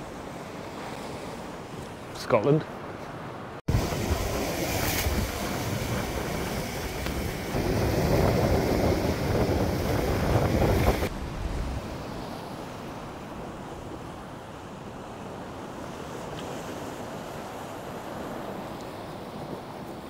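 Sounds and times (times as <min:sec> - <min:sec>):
surf breaking on rocks: 0:03.7 - 0:13.9
wind buffeting microphone: 0:03.7 - 0:14.9.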